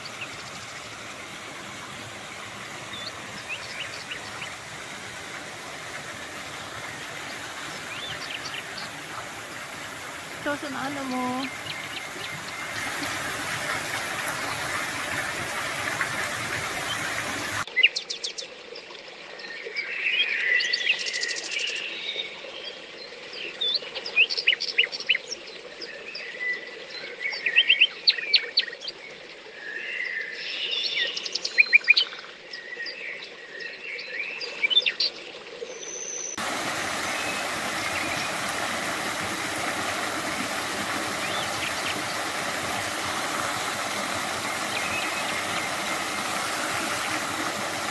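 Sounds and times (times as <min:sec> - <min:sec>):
water rushing: 0:00.0 - 0:17.7, 0:36.4 - 0:47.9
small waterfall splashing: 0:00.0 - 0:19.4, 0:36.4 - 0:47.9
songbirds chirping and singing: 0:05.4 - 0:17.6.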